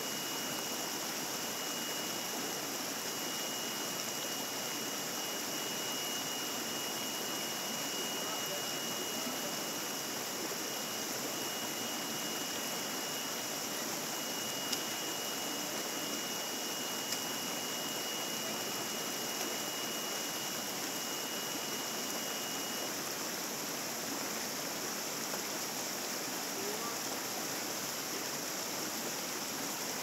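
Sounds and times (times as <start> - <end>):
stream rushing over rocks: 0.0 - 30.0
thin high tone: 3.1 - 22.9.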